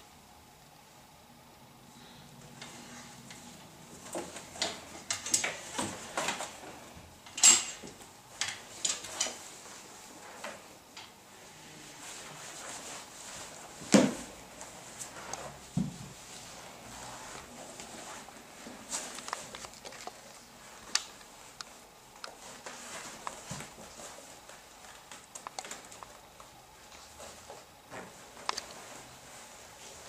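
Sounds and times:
clothes hangers clacking on rail: 7.3 - 9.4.

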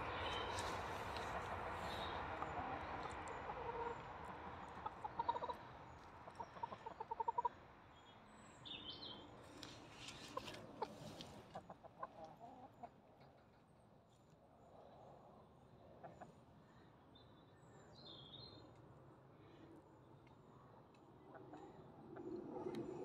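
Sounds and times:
hens clucking softly: 0.1 - 7.6, 10.1 - 13.7, 15.9 - 16.5.

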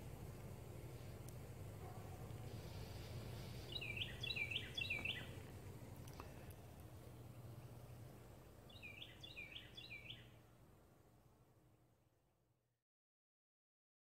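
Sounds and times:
songbird singing: 0.0 - 11.2
faint low hum: 0.0 - 12.8.

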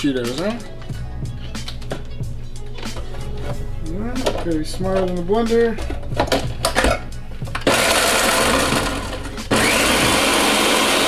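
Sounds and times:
blender grinding chips: 7.6 - 11.0.

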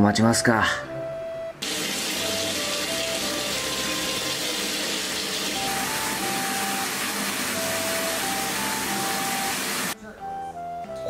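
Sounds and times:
light background music: 0.0 - 11.0
faucet water pouring into tub: 1.6 - 10.0.

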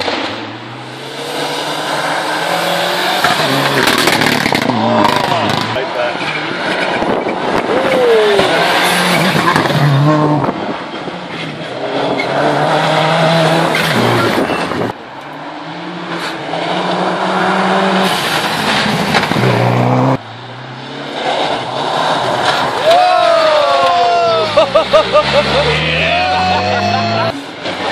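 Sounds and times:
rally car engines revving: 0.0 - 27.9.

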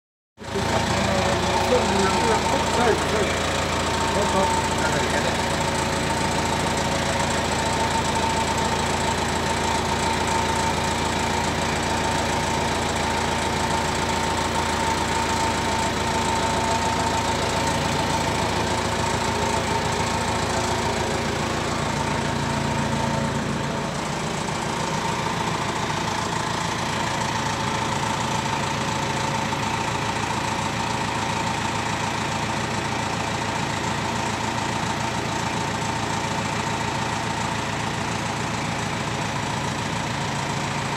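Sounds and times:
engine idling rumble: 0.4 - 40.9
constant whine: 0.5 - 12.4.

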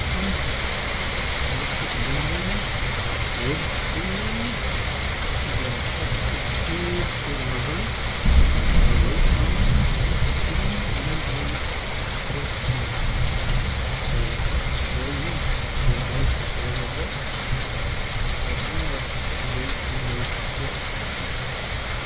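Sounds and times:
low rumble of thunder: 0.0 - 22.0
steady rain falling: 0.0 - 22.0.

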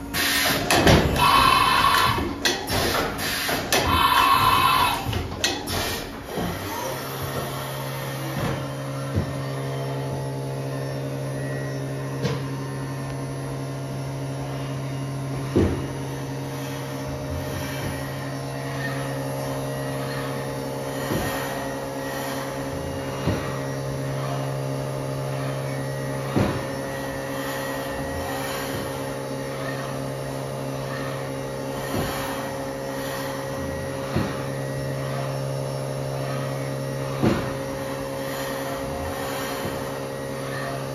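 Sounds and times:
machine mechanical hum: 0.0 - 40.9.

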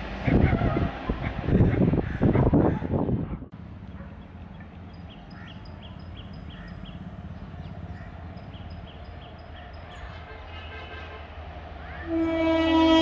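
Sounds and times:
bird chirping: 3.9 - 10.2.

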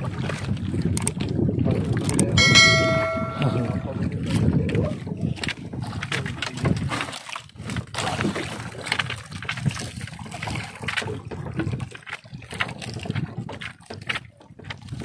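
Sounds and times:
water lapping against boat hull: 0.0 - 15.0
light knocks and splashes: 5.4 - 15.0.

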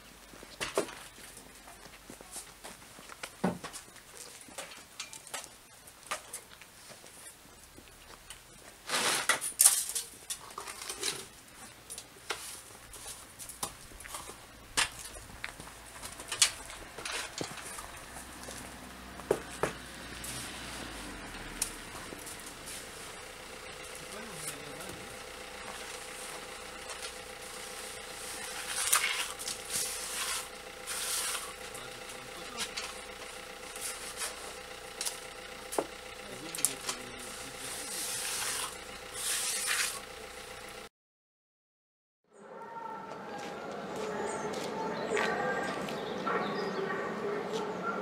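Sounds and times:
trowel scraping plaster: 28.2 - 32.6, 37.5 - 40.1.

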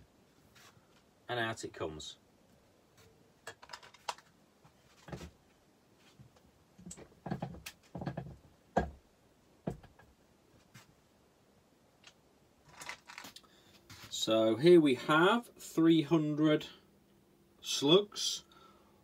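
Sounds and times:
objects clicking and knocking: 12.7 - 13.4.

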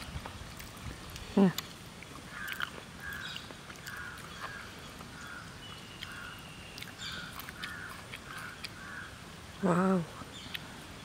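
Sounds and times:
bird calling: 2.2 - 11.0.

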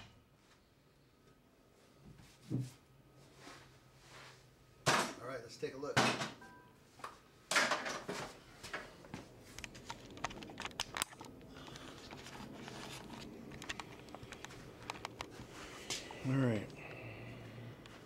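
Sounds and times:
camera handling rustle: 9.6 - 15.5.

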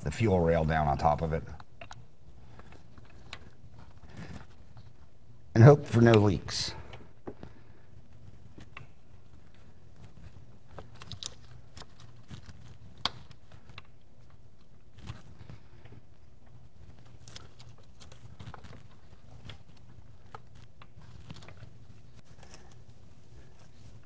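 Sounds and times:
light clicks and knocks of parts: 6.0 - 24.0.

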